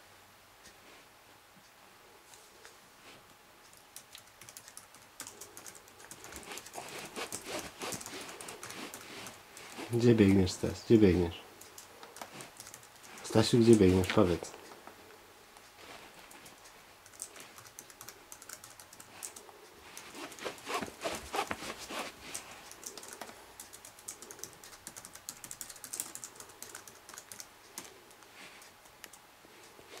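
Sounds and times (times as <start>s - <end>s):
fabric crackling and rustling: 6.2s - 10.2s, 19.8s - 22.7s.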